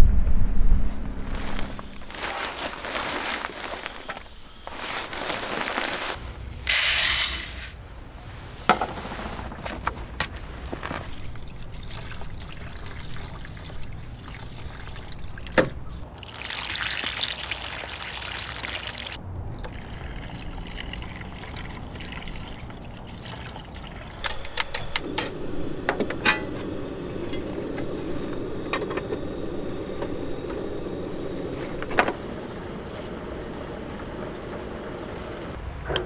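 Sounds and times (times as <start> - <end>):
liquid being poured: 16.2 - 24.3.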